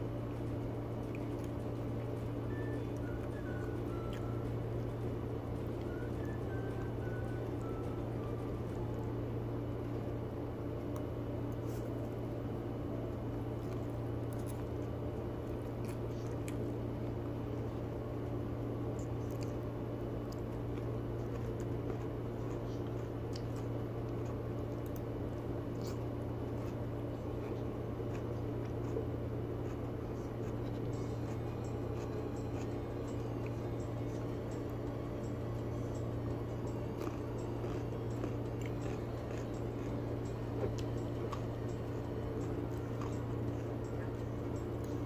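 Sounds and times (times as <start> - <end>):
steady low hum: 0.0 - 45.0
chewing: 13.6 - 16.7, 19.0 - 25.1, 25.7 - 45.0.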